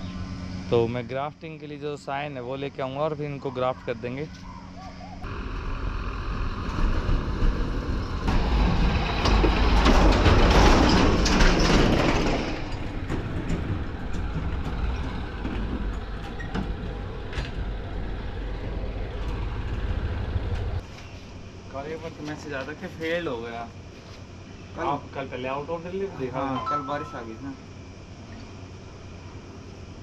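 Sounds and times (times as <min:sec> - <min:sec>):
vehicle engine and road noise: 0:03.5 - 0:24.7.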